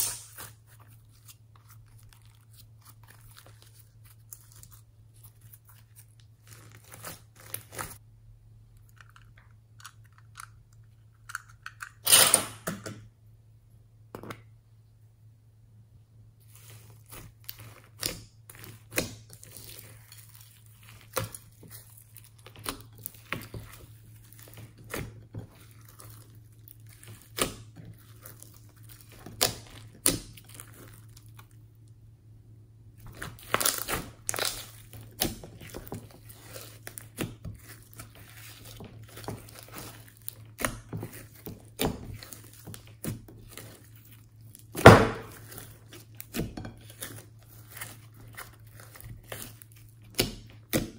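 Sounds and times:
slime squishing and popping: 33.0s - 50.9s.

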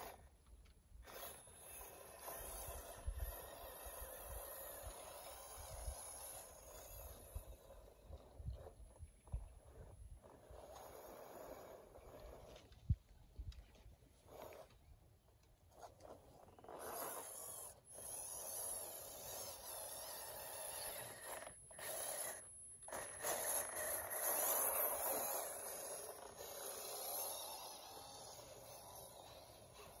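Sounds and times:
electric motor whirring: 1.0s - 12.6s, 15.8s - 30.0s
faint high whine: 16.0s - 30.0s.

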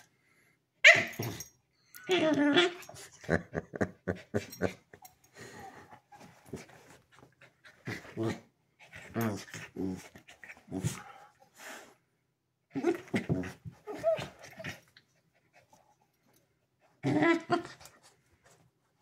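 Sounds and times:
dogs growling and yapping: 0.9s - 11.4s, 12.7s - 15.8s, 16.8s - 18.1s.

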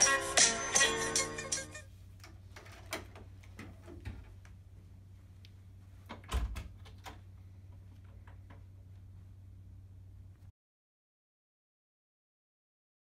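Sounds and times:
steady low hum: 0.0s - 10.5s.

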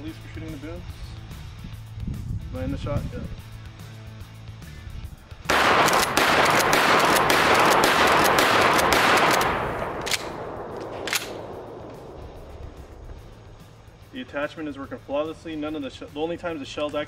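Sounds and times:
sharp clicks: 5.5s - 13.4s
shotgun blast: 5.5s - 13.5s.

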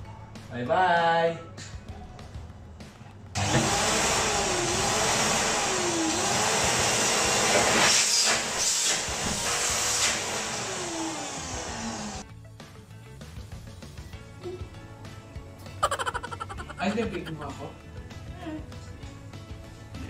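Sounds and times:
vacuum cleaner running: 3.4s - 12.2s.

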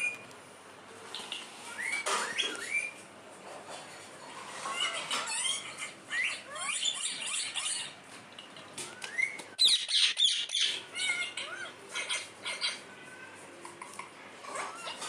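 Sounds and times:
parakeets chirping and squawking: 1.1s - 3.0s, 3.9s - 12.9s, 13.8s - 15.0s
parakeets screeching: 4.4s - 8.0s, 9.0s - 12.9s, 13.8s - 15.0s.

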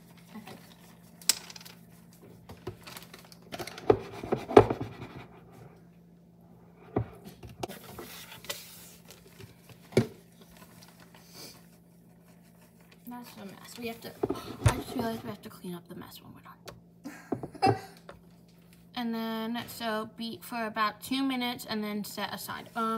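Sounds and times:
steady low hum: 0.0s - 22.9s
plastic bag rustling: 2.6s - 3.5s.

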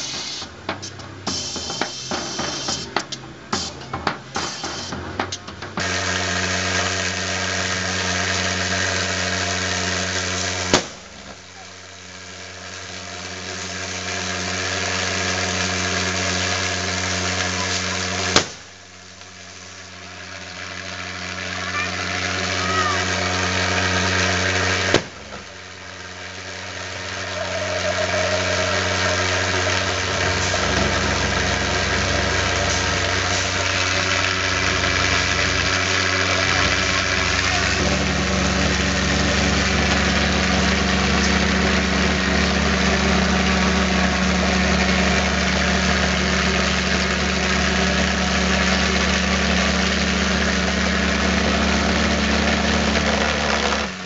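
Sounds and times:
pulsejet engine drone: 0.0s - 54.0s.

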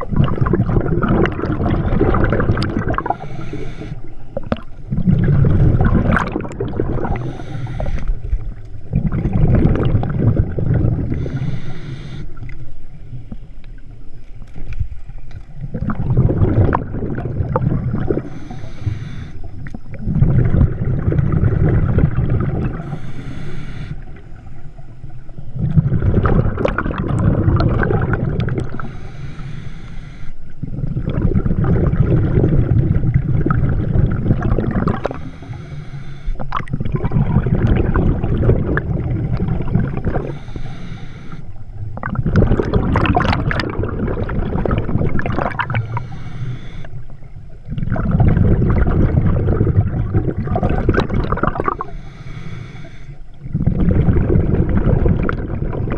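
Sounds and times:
exhaled bubbles rushing: 0.0s - 12.6s, 15.5s - 29.0s, 30.6s - 35.6s, 36.4s - 40.7s, 41.5s - 46.2s, 46.9s - 52.0s, 53.4s - 55.9s
diver inhaling through regulator: 1.2s - 8.4s, 10.0s - 12.5s, 17.6s - 20.6s, 22.6s - 24.5s, 28.0s - 31.2s, 34.5s - 36.8s, 38.9s - 41.7s, 44.2s - 47.2s, 49.5s - 54.2s.

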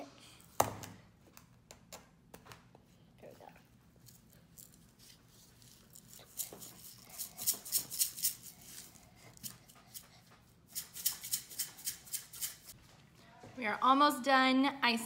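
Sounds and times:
sprinkles rattling in plastic shaker: 4.1s - 10.0s, 10.7s - 12.7s.

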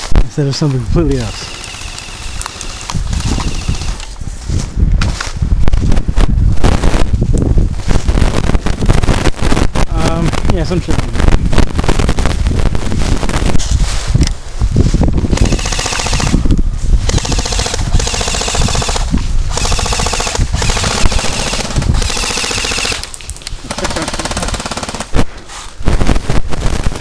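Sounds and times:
airsoft rifle firing full-auto: 15.3s - 16.4s, 17.1s - 23.1s, 23.7s - 25.2s.

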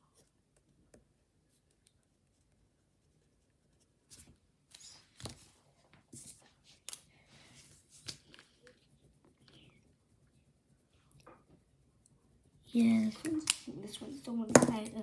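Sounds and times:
pens scratching on paper: 7.6s - 15.0s.

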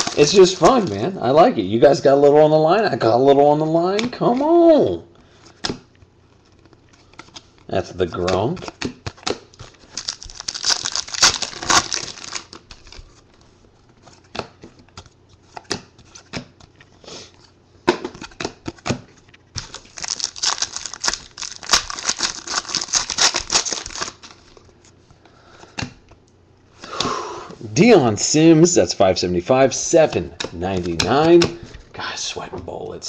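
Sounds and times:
trading cards rustling: 0.0s - 1.0s, 5.3s - 17.6s, 18.2s - 25.2s, 29.8s - 31.9s.

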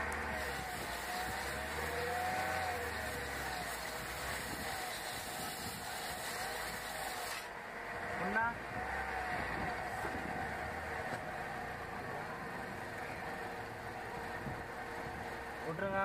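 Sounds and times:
engine hum: 0.0s - 16.0s
sandpaper scraping brake disc: 0.3s - 7.5s.

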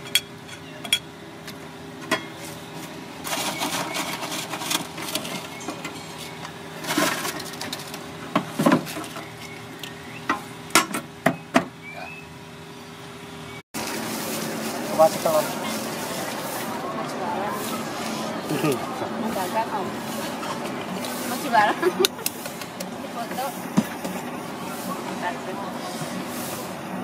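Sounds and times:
crackers rustling: 3.2s - 5.6s, 6.8s - 8.2s.

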